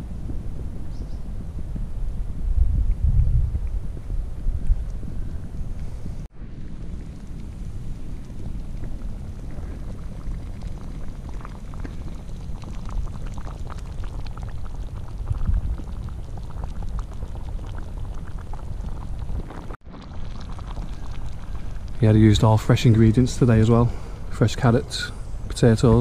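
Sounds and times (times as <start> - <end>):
stove low rumble: 0.0 - 26.0
stew bubbling with pops: 6.8 - 26.0.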